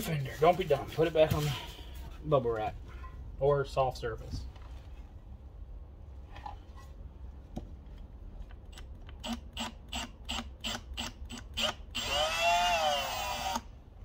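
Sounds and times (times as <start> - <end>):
cordless drill drilling into metal: 9.2 - 13.7.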